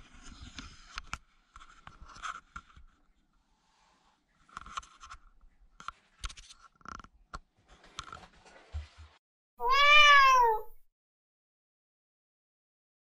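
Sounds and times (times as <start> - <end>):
cat meowing: 9.6 - 10.8.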